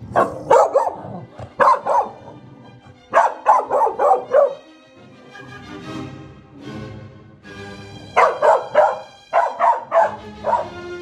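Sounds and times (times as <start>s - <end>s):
dog barking: 0.0s - 2.4s, 3.1s - 4.7s, 8.0s - 10.8s
background music: 0.0s - 11.0s.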